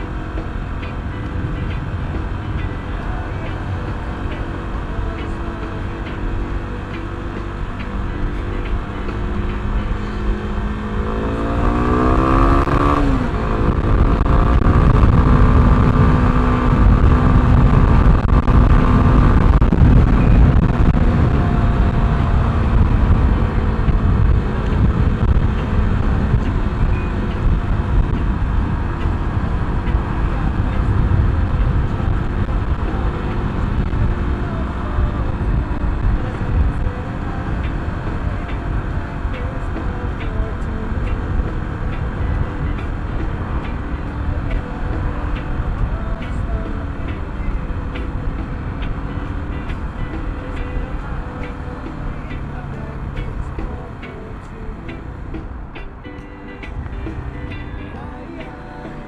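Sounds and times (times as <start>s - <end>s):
motorbike engine: 0.0s - 59.0s
road rumble: 0.0s - 59.0s
wind noise: 0.0s - 59.0s.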